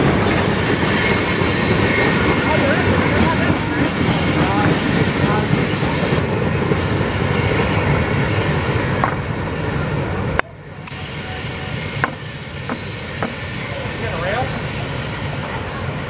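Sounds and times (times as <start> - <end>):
train wheels rumbling on rails: 0.0 - 16.0
sharp rail clicks: 8.4 - 9.3, 10.3 - 11.2, 11.9 - 13.6.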